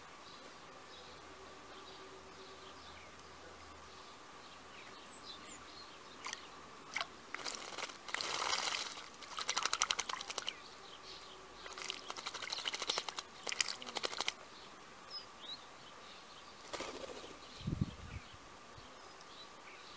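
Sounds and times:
bird splashing in water: 6.2 - 10.6, 11.6 - 14.4.

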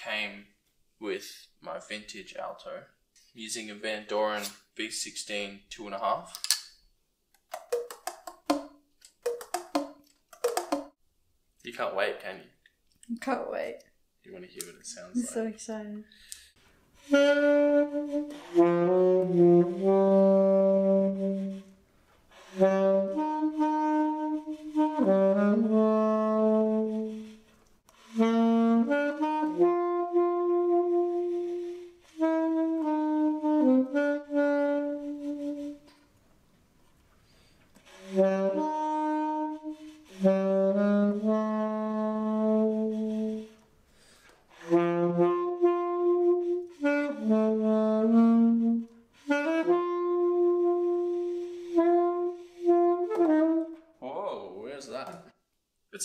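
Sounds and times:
alto saxophone held notes: 17.0 - 36.0, 37.8 - 43.6, 44.5 - 53.9.

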